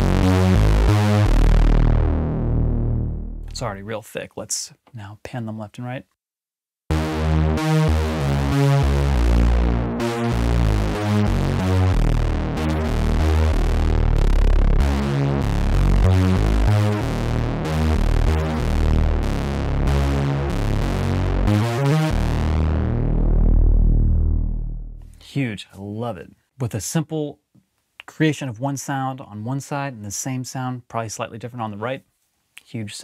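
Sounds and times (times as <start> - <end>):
analog synthesizer playing notes: 0.0 - 3.9, 6.9 - 25.2.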